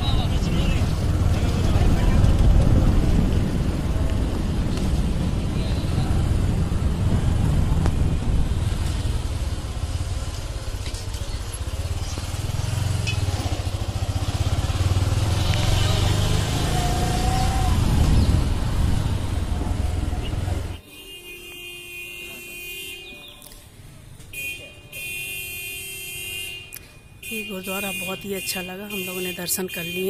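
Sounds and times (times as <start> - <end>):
wind buffeting microphone: 0.2 - 9.3, 17.2 - 20.7.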